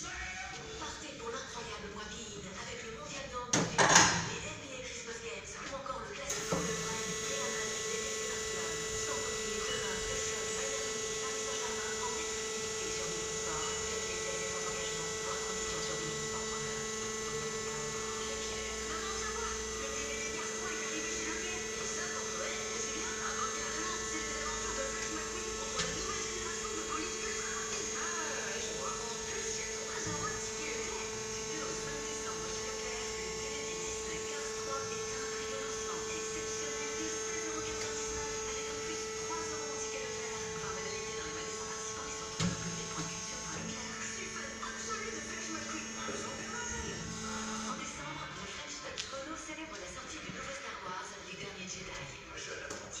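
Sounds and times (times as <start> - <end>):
drive motor humming: 6.2 - 53.0.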